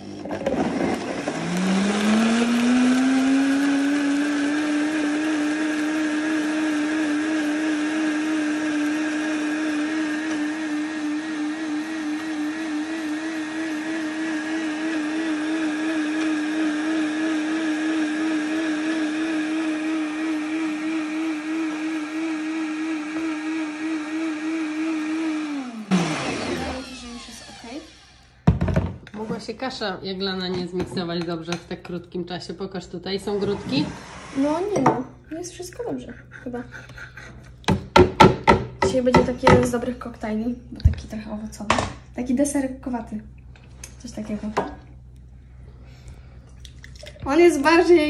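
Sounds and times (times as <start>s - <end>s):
blender motor whining: 0.0s - 28.6s, 33.2s - 34.8s.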